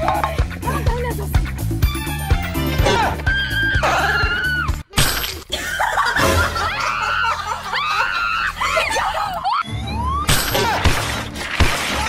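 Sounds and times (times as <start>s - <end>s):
woman screaming and wailing: 2.9s - 4.8s, 6.5s - 10.3s.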